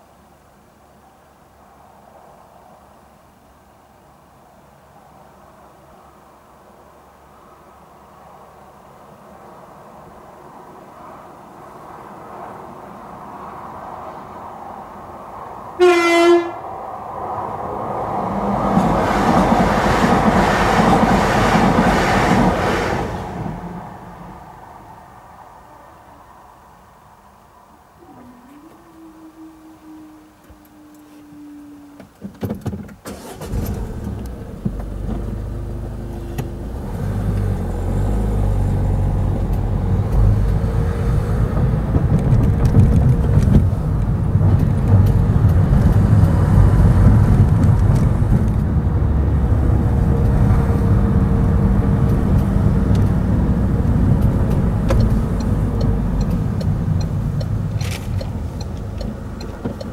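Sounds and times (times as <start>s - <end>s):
road noise: 0.0s - 59.9s
car engine starting and running: 31.8s - 59.9s.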